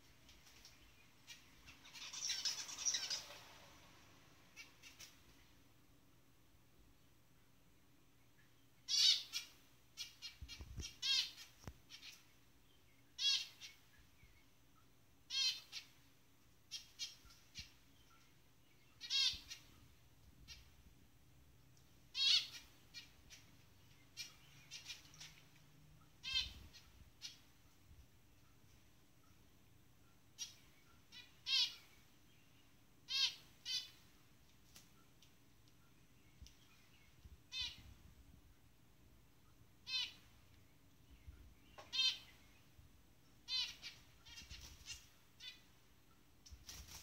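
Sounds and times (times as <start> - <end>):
finch calling: 1.3 - 3.4, 8.9 - 12.2, 13.2 - 13.8, 18.9 - 19.7, 22.2 - 25.5, 26.2 - 27.4, 37.5 - 37.9, 39.9 - 40.3, 41.6 - 42.4, 43.5 - 45.6.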